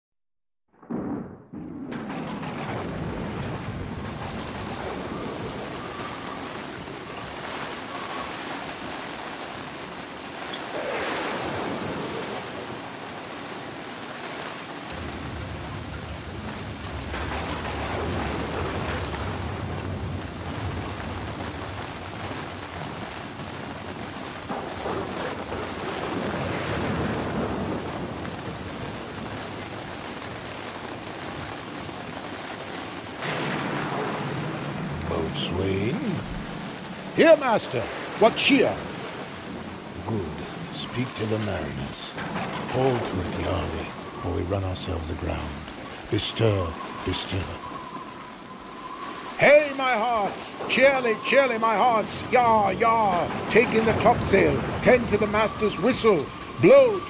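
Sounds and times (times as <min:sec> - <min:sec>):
wind: 0:00.9 - 0:57.0
surf waves surging: 0:01.0 - 0:57.0.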